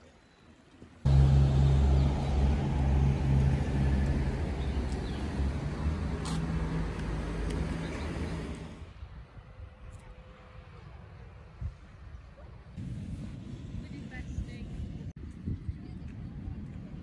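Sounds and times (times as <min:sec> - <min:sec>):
vehicle engine rumble: 0:01.0 - 0:11.6.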